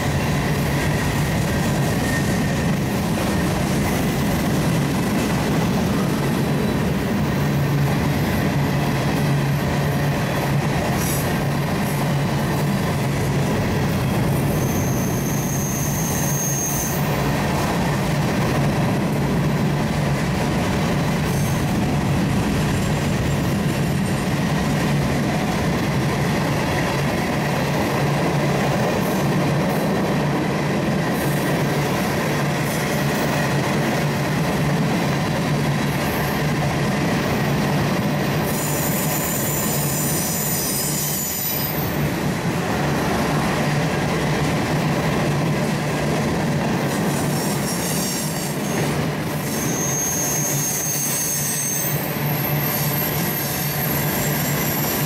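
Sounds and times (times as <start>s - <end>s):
train wheels on rails: 0.0s - 55.0s
high-pitched wheel squeals: 14.3s - 17.2s, 38.3s - 42.0s, 47.1s - 55.0s.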